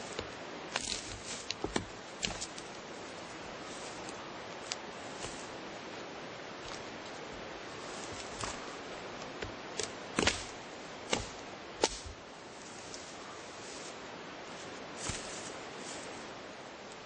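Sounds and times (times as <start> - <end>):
dry twigs snapping: 0.0 - 2.9, 3.9 - 5.5, 8.0 - 12.2
steady hiss: 0.0 - 17.0.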